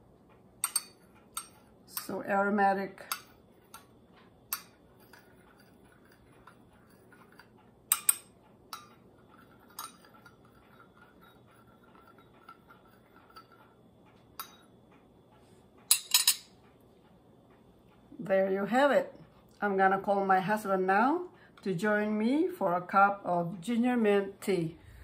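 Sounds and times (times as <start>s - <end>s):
teaspoons stirring in teacups: 4.5s - 8.2s, 8.8s - 13.7s.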